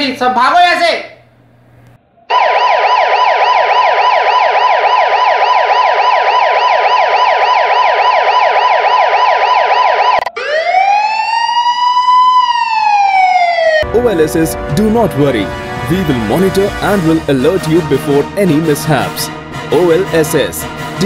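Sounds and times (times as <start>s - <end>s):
electronic siren yelp and wail: 2.3s - 13.9s.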